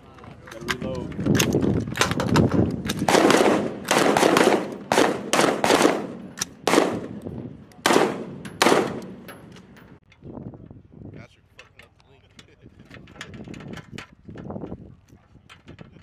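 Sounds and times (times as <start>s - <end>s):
rifle shots: 2.0s - 7.2s, 7.8s - 9.3s.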